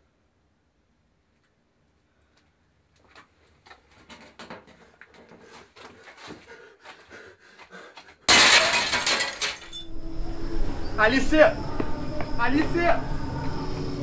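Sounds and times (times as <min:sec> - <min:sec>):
small knocks and rustles: 0:03.0 - 0:06.4
loud crash: 0:08.3 - 0:09.9.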